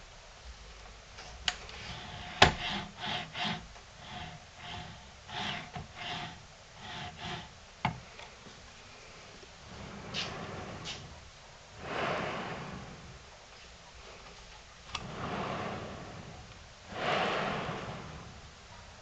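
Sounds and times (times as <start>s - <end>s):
bearings rolling along metal rails: 1.8s - 7.6s, 9.6s - 13.4s, 14.9s - 19.0s.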